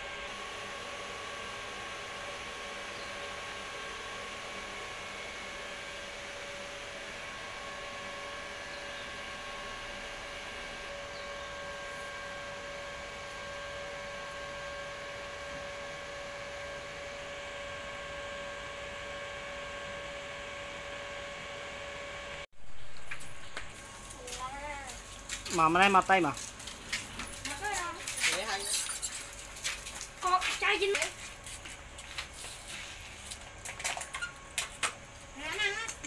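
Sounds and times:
electric blower motor whining: 0:00.0 - 0:22.4.

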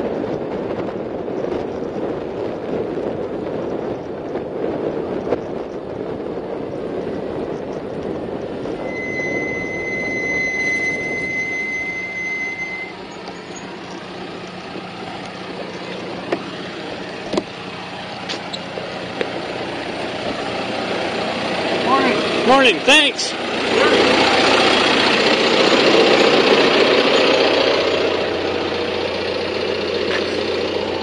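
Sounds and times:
tractor diesel engine running: 0:00.0 - 0:31.0
wind and road noise from bicycle: 0:00.0 - 0:31.0
bicycle brakes squealing: 0:08.7 - 0:14.1.

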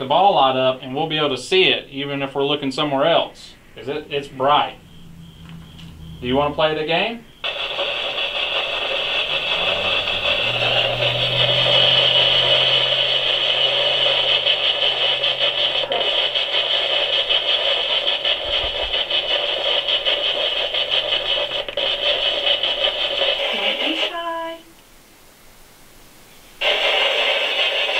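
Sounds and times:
faint low hum: 0:00.0 - 0:16.1
radio static hiss with flicker: 0:05.5 - 0:27.9.

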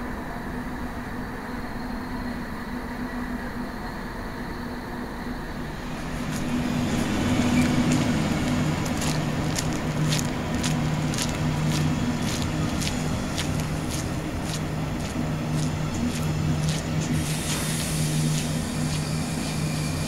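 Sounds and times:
train coaches rolling past: 0:00.0 - 0:20.0
steady low hum: 0:05.4 - 0:20.0.

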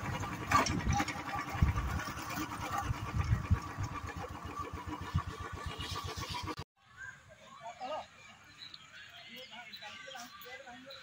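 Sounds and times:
small engine droning: 0:00.0 - 0:06.7.

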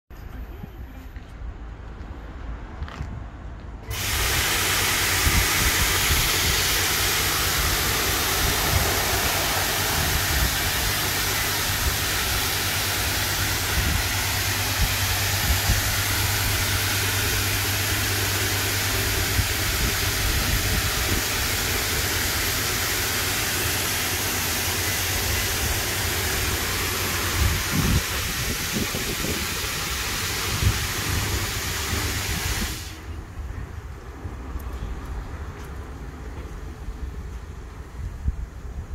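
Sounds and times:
motors and pumps humming: 0:03.8 - 0:33.4
high-pressure water spray hissing: 0:03.9 - 0:33.2.

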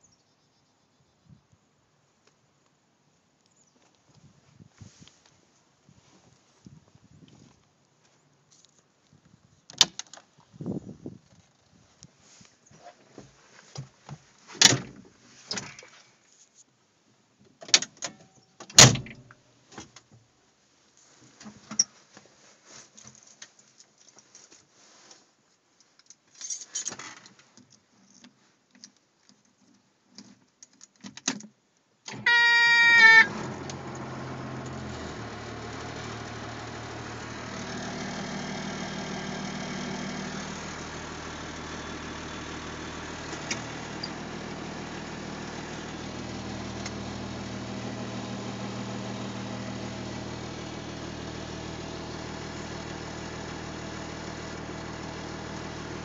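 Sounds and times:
diesel engine running: 0:32.2 - 0:56.0
starter motor whine: 0:32.2 - 0:56.0.

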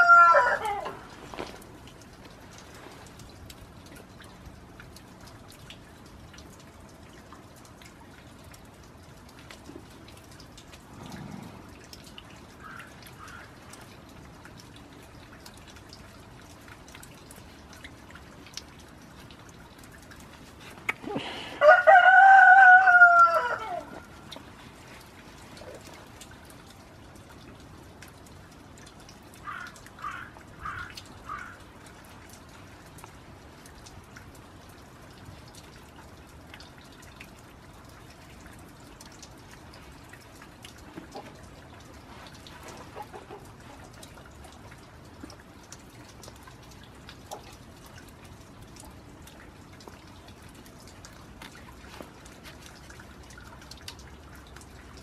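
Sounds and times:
rooster crowing: 0:00.0 - 0:01.0, 0:21.6 - 0:24.0
rain dripping: 0:00.0 - 0:55.0
chicken clucking: 0:42.9 - 0:43.8.

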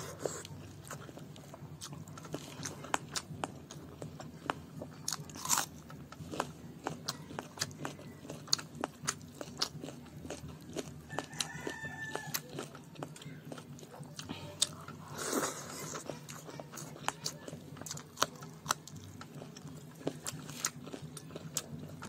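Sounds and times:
chewing with sharp clicks: 0:00.2 - 0:22.0
rooster crowing: 0:11.0 - 0:12.7.

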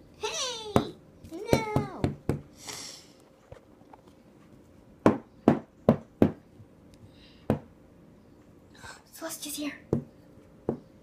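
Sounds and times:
knocks on hard surface: 0:05.0 - 0:06.4.

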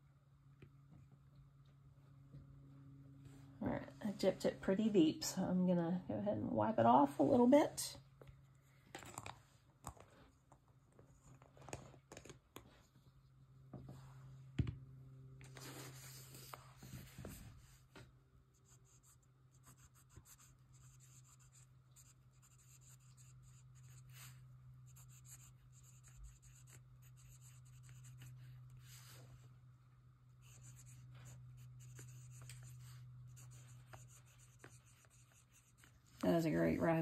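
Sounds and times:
low steady hum: 0:00.0 - 0:37.0
fountain pen scratching on paper: 0:18.7 - 0:28.5, 0:30.4 - 0:35.9.

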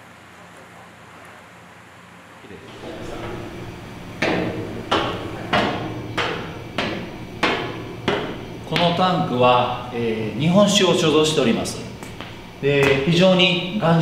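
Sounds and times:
low steady hum: 0:00.0 - 0:14.0
boots on metal staircase: 0:02.7 - 0:09.9, 0:12.0 - 0:13.4.

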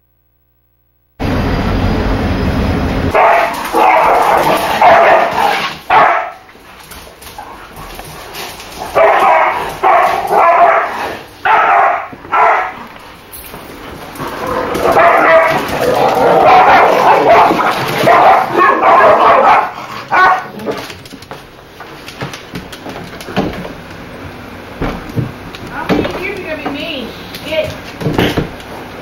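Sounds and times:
low rumble: 0:01.2 - 0:03.2
dogs barking: 0:03.1 - 0:13.0, 0:14.1 - 0:20.8.

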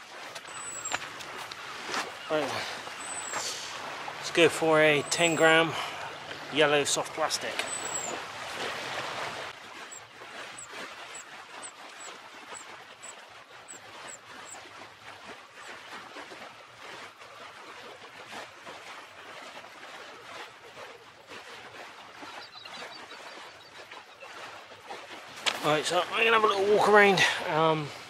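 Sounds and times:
waves lapping on shingle: 0:00.0 - 0:28.0
faint high chirps: 0:00.5 - 0:01.0, 0:03.0 - 0:03.4, 0:07.6 - 0:08.2.

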